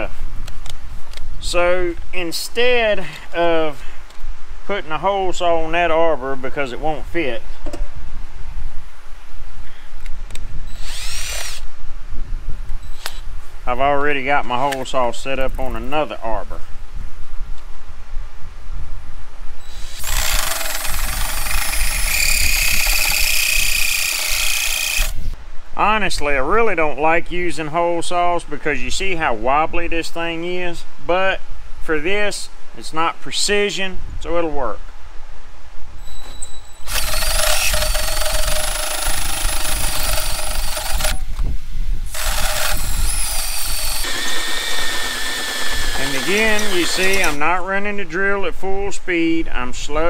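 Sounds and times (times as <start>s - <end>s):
drill motor whining: 10.7s - 11.6s, 19.7s - 25.3s, 36.8s - 41.3s, 42.1s - 47.4s
hole saw grinding screech: 10.7s - 11.6s, 19.7s - 25.3s, 36.1s - 41.2s, 42.1s - 47.4s
high metal ringing tone: 36.0s - 36.9s.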